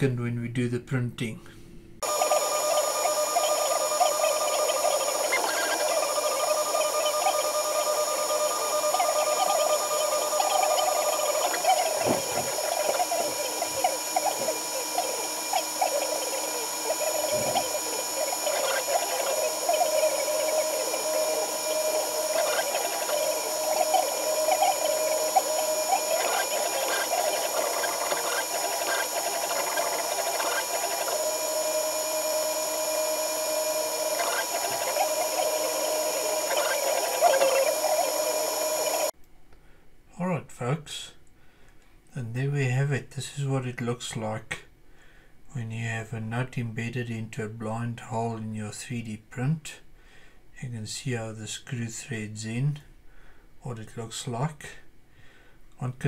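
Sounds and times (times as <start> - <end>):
printer hum: 2.0 - 39.1
stepper motors chirping: 2.0 - 39.1.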